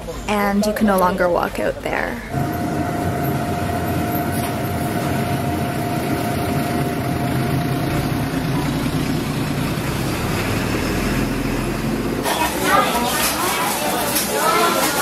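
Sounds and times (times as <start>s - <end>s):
thin steady whine: 0.0s - 10.3s
machine low hum: 2.2s - 12.3s.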